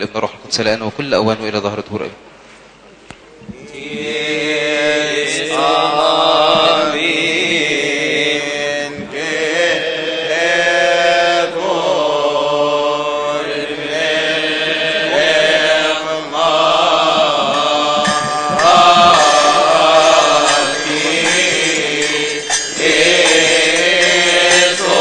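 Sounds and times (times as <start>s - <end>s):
men chanting: 3.5s - 25.0s.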